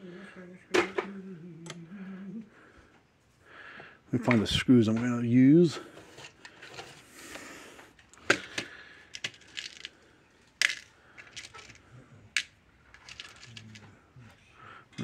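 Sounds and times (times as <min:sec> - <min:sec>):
small screws clinking in a box: 0:08.5 - 0:13.9.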